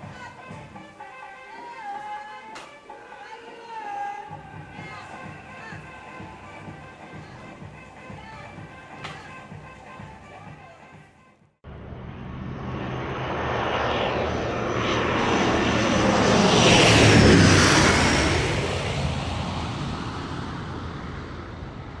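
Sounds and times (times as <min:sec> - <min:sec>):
aircraft engine roar passing: 0:11.7 - 0:22.0.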